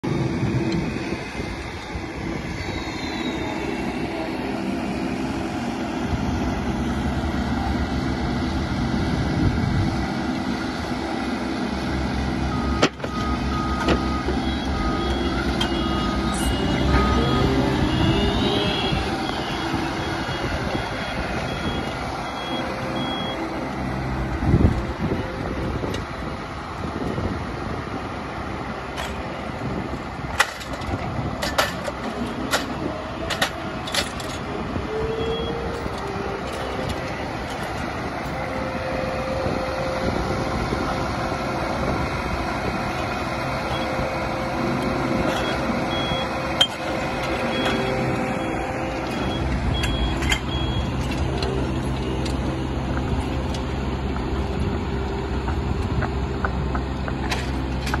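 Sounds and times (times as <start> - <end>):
deep engine drone: 0.0 - 58.0
paving machine running: 0.0 - 58.0
reversing alarm beeping: 12.5 - 23.7, 33.3 - 40.7, 45.2 - 52.6.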